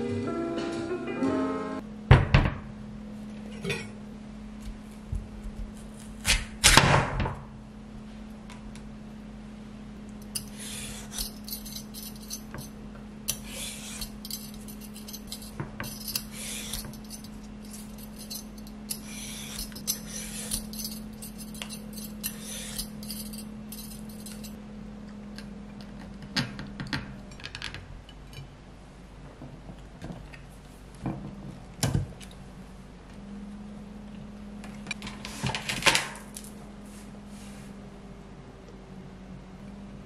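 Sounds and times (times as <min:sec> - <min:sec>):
steady low hum: 0:00.0 - 0:35.2
tableware clinking: 0:10.2 - 0:24.6.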